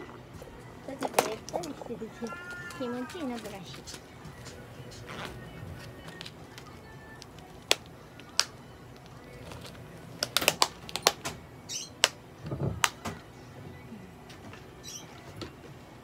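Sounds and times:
plastic fasteners clicking shut: 0:07.2 - 0:11.4.

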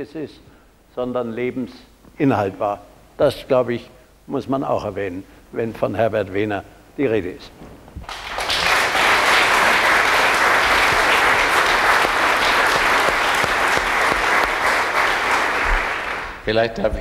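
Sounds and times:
audience applauding: 0:08.0 - 0:16.5.

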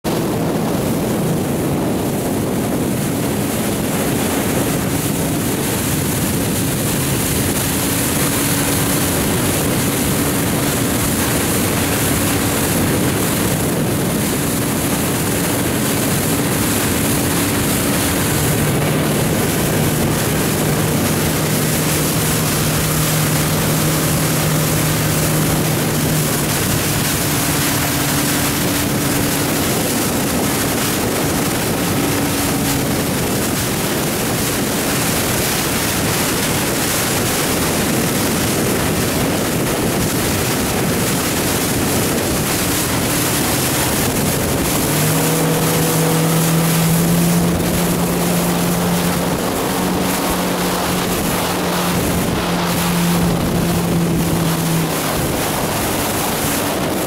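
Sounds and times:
motorboat engine hum: 0:00.0 - 0:57.0
water rushing: 0:00.0 - 0:57.0
wind: 0:00.0 - 0:57.0
low engine note: 0:05.2 - 0:34.0, 0:41.7 - 0:57.0.

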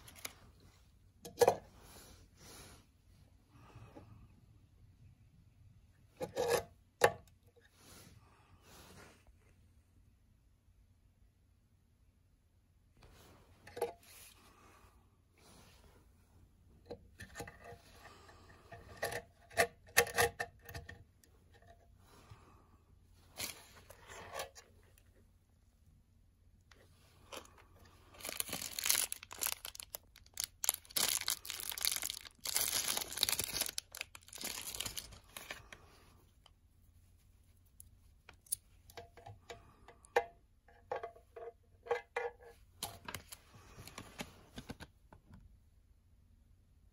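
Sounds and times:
cable rustle: 0:26.7 - 0:35.8.

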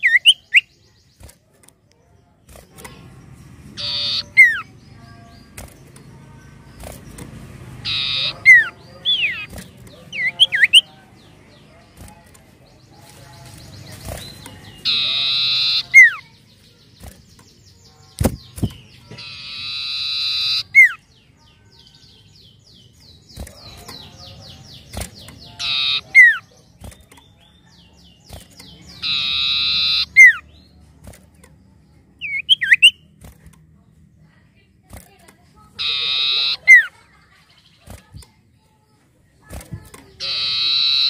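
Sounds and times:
bird buzzy trill and whistle: 0:00.0 - 0:00.8, 0:03.8 - 0:04.7, 0:07.8 - 0:10.9, 0:14.1 - 0:16.3, 0:19.2 - 0:21.0, 0:25.0 - 0:26.5, 0:28.3 - 0:30.5, 0:32.2 - 0:33.0, 0:35.8 - 0:37.0, 0:40.2 - 0:41.0.

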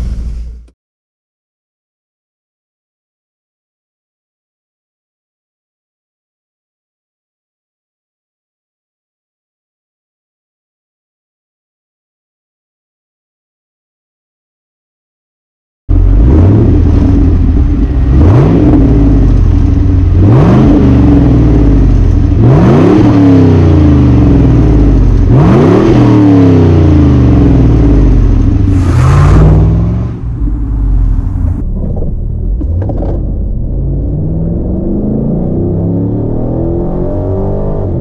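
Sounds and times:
engine heard from inside car: 0:00.0 - 0:00.7
car engine revving: 0:15.9 - 0:38.0.

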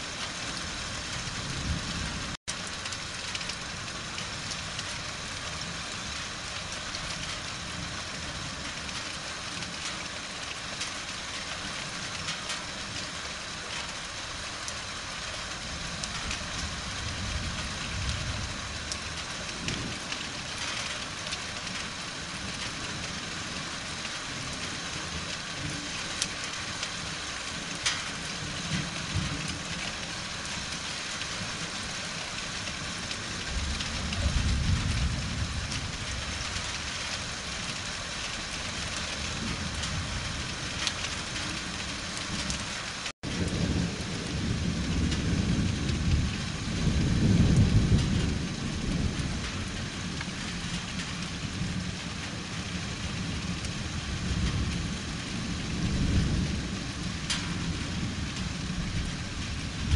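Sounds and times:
heavy rain hissing: 0:00.0 - 0:59.9
raindrop impacts: 0:00.1 - 0:59.9
distant thunder rumbling: 0:26.7 - 0:59.9.

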